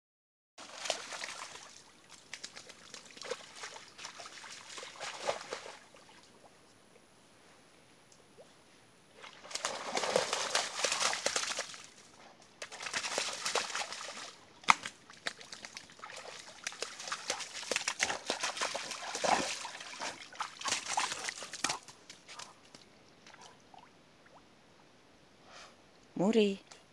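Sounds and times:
dog splashing through puddle: 0.6 - 6.2, 9.2 - 12.0, 12.6 - 23.4.

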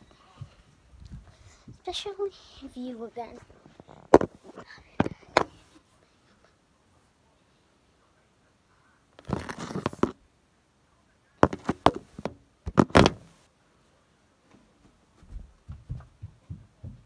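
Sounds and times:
rustling scrape: 9.2 - 10.2, 11.4 - 13.4
sharp knocks and thumps: 11.4 - 13.3.

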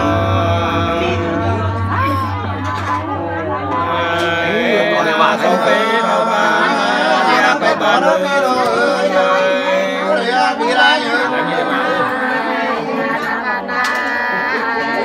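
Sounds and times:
two men singing unaccompanied: 3.7 - 15.0.

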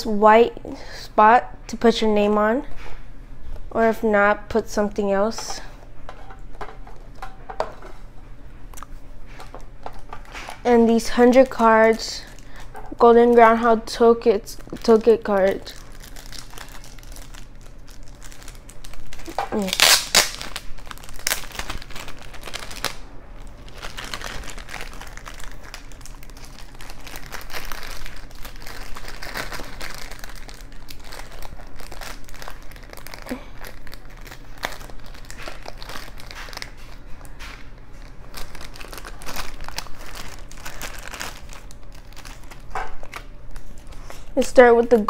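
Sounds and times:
plastic bag crinkling: 9.3 - 45.0.

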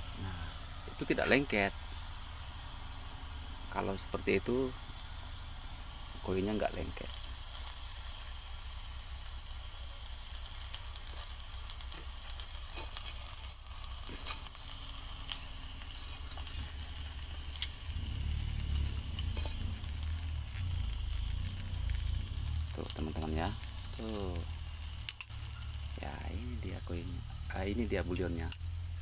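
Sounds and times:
molten metal hiss and crackle: 0.0 - 29.0
low rumble: 14.7 - 28.0
metal tongs clicking on crucible: 25.0 - 25.6.

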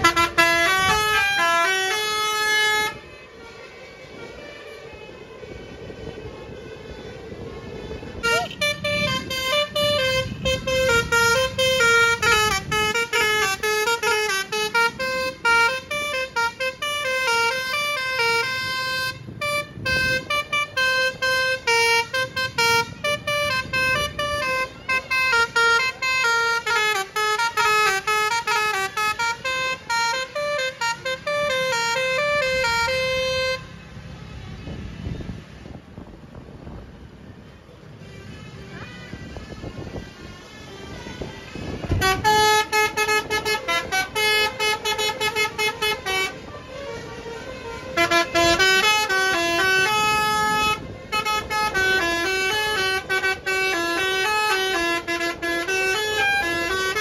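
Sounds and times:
air horn playing melody: 0.0 - 4.4, 8.0 - 33.7, 41.6 - 57.0.

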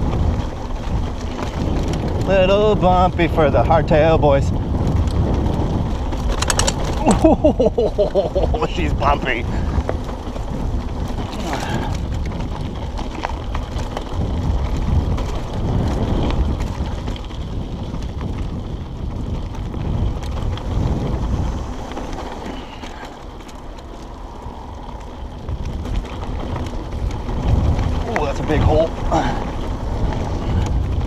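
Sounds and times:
bike rattling: 0.0 - 31.0
tyres rolling over stones: 0.0 - 31.0
wind rushing over microphone: 0.0 - 31.0.

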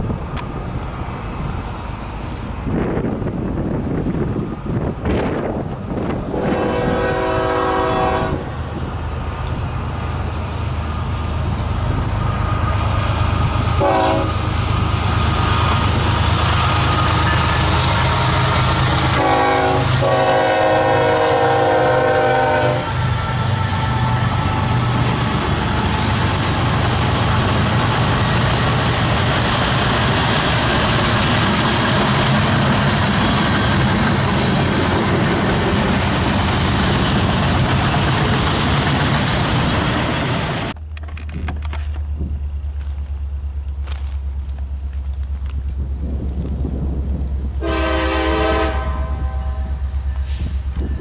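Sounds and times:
train cars rumbling and clattering: 0.0 - 51.0
locomotive horn blasts: 6.3 - 8.5, 13.7 - 14.4, 19.0 - 23.0, 47.6 - 49.8
engine rumble: 8.3 - 48.3.

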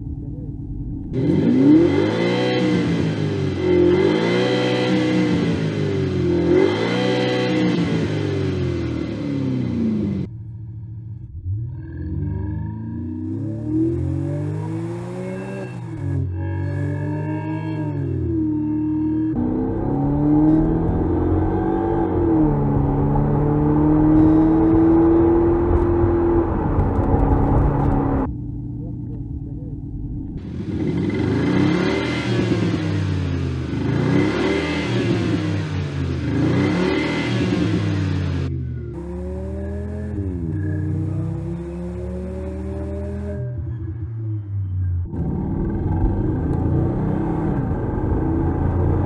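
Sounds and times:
synthetic engine sound revving: 30.4 - 49.0.

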